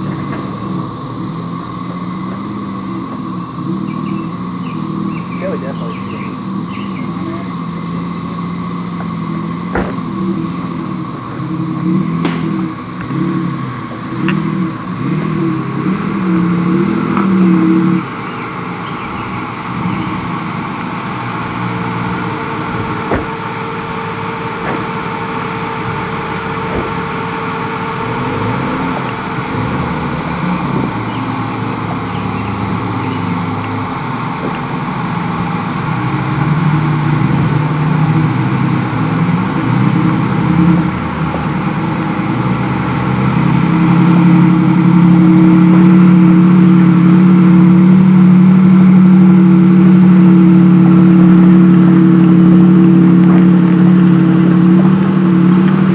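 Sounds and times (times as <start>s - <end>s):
suv engine revving: 0.0s - 55.9s
sharp knocks: 9.7s - 10.1s, 23.0s - 23.4s.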